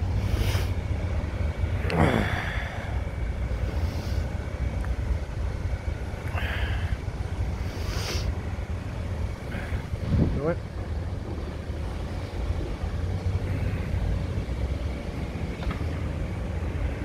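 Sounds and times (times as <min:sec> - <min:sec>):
road traffic: 0:00.0 - 0:17.0
wind on microphone: 0:09.3 - 0:10.6.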